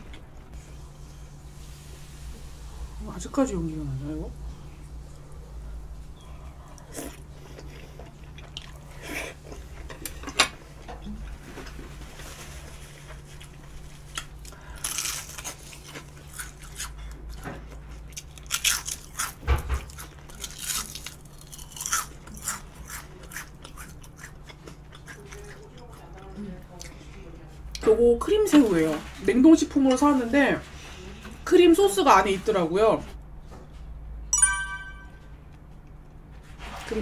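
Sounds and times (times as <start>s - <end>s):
low steady hum: 0.0s - 19.1s, 33.1s - 36.9s
chewing and biting: 6.6s - 10.2s, 13.1s - 27.0s
crisp crunches of fried food: 11.4s - 26.1s.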